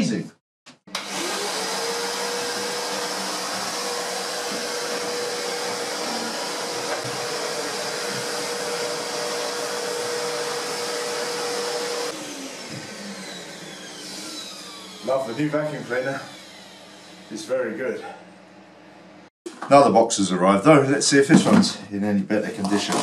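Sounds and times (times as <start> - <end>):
vacuum cleaner motor whining: 0.9 - 17.8
vacuum hose sucking debris: 1.2 - 12.1.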